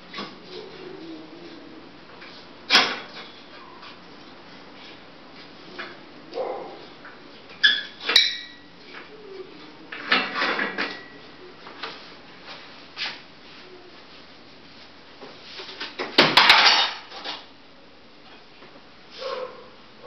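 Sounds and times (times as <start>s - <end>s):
objects knocking and clattering: 9.9s - 11.1s, 15.7s - 17.5s.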